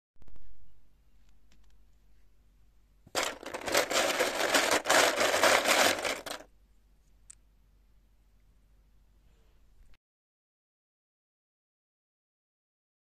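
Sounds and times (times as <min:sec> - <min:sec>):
plastic toy figures clattering: 0:03.1 - 0:06.5.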